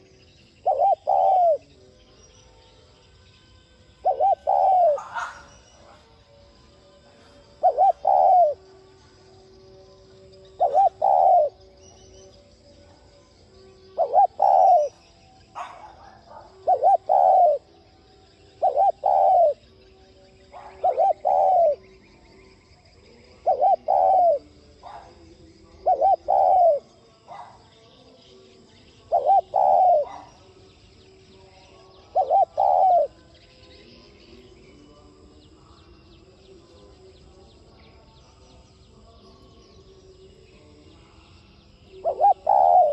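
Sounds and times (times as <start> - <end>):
dove cooing: 0.0 - 1.8, 4.0 - 6.2, 7.5 - 9.0, 10.4 - 11.8, 13.9 - 17.9, 18.5 - 19.8, 20.4 - 21.9, 23.3 - 27.7, 28.9 - 30.6, 31.7 - 33.2, 41.9 - 42.9.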